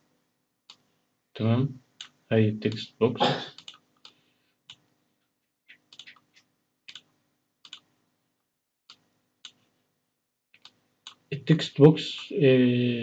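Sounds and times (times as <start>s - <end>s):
computer mouse clicks: 3.6s - 4.8s, 5.7s - 7.9s, 10.6s - 11.3s.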